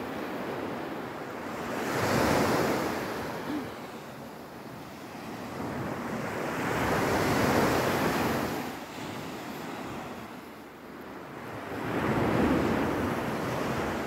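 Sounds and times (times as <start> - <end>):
sea waves breaking on sand: 0.0 - 14.0.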